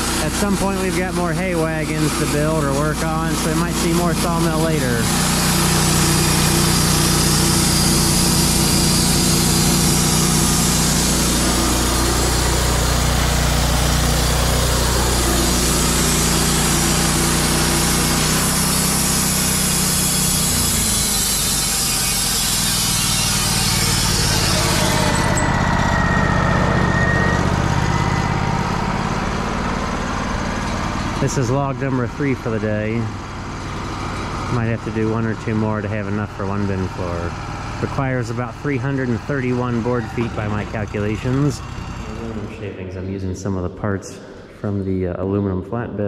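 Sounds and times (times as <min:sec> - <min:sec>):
thin whine: 0:00.0 - 0:43.7
sawmill engine running: 0:00.0 - 0:45.0
blade cutting log hiss: 0:03.4 - 0:25.2.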